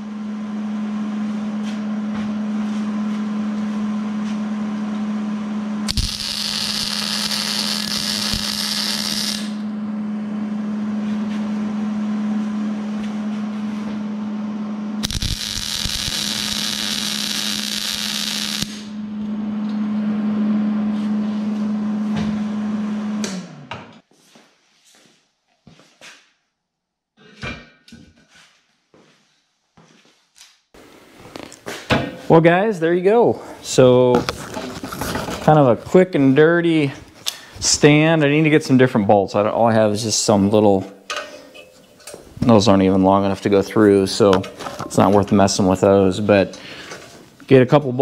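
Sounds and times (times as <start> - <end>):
welding machine hum: 5.8 - 9.8, 15.0 - 20.1
welding arc crackling and hissing: 5.9 - 9.6, 15.0 - 18.9.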